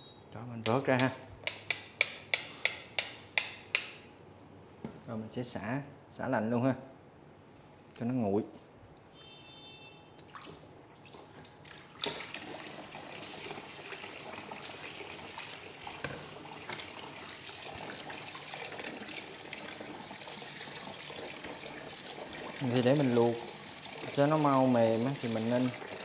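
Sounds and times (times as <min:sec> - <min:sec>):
tap water splashing into bowl: 0:10.2 - 0:26.0.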